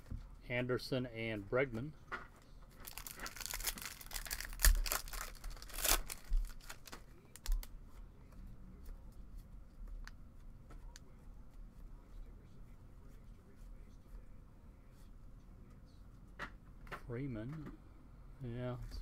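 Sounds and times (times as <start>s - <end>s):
foil wrapper tearing and crinkling: 2.8s - 7.6s.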